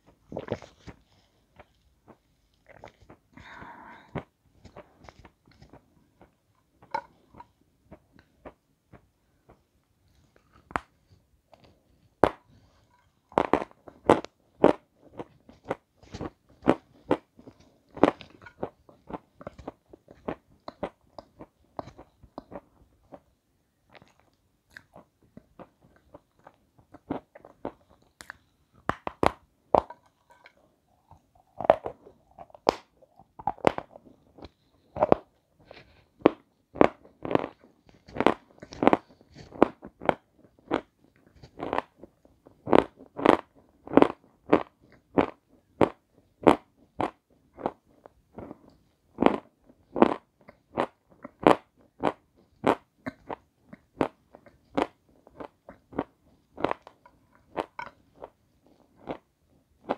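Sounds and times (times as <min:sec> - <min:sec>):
crunchy biting and chewing: 0:31.0 - 0:41.9.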